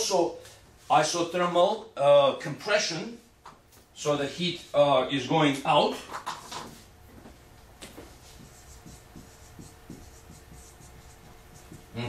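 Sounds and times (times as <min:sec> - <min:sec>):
marker writing on whiteboard: 0:07.9 - 0:12.0.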